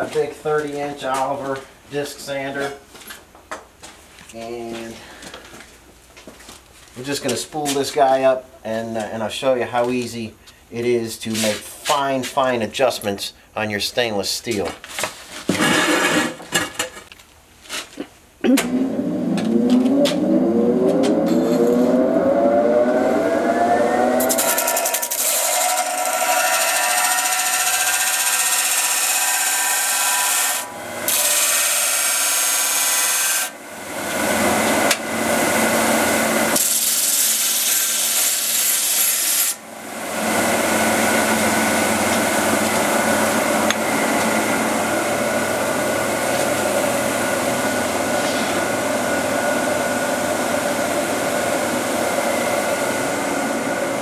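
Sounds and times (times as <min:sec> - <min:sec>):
sander motor whining: 0:18.6 - 0:31.3
metal tube grinding on disc: 0:24.2 - 0:33.5.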